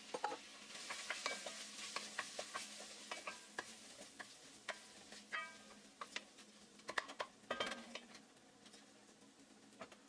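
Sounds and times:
oil sizzling: 0.0 - 10.0.

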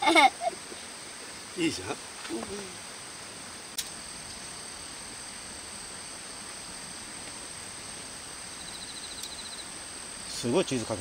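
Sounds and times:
insects chorus: 0.0 - 11.0.

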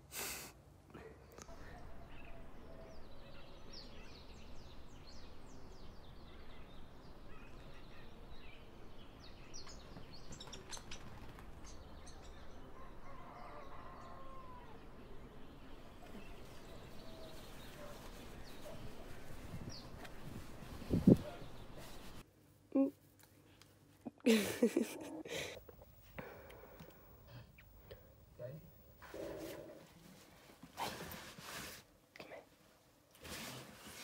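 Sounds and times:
small birds chirping: 1.4 - 22.2.

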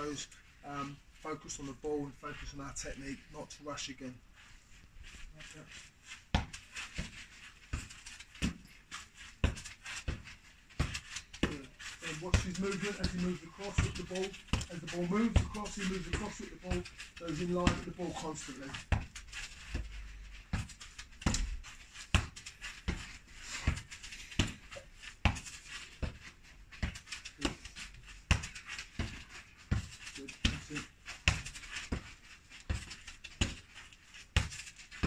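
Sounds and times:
boot kicking football thuds: 6.3 - 26.2.

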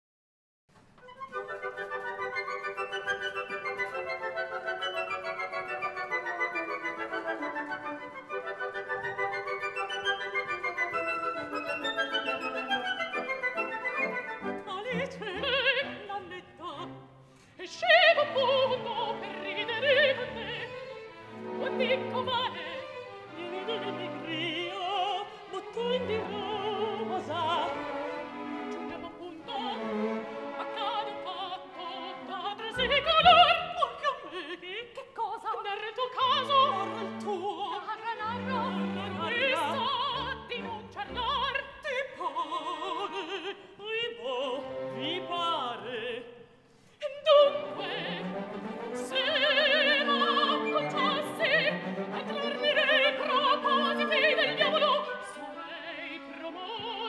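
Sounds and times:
orchestra accompaniment: 1.1 - 17.0, 47.3 - 56.8
women singing opera: 1.4 - 57.0.

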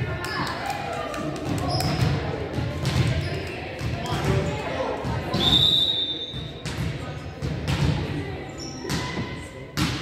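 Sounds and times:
low background murmur: 0.0 - 10.0
basketball bouncing on court: 1.4 - 4.5, 6.4 - 8.0.

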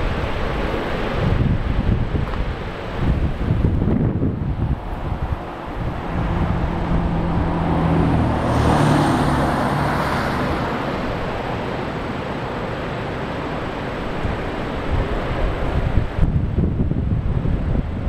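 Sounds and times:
vehicle passing by: 3.6 - 13.0.

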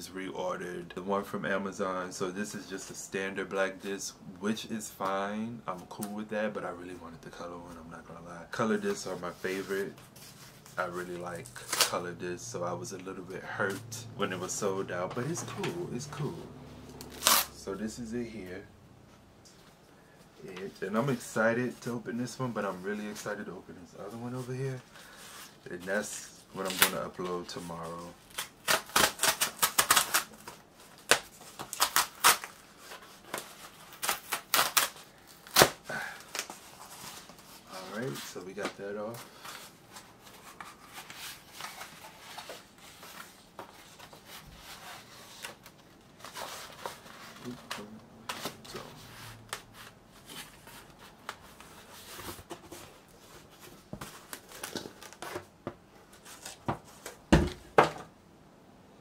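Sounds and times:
packaging tearing and crinkling: 17.0 - 17.6, 28.2 - 37.1
cardboard rustling and scraping: 24.0 - 58.0.

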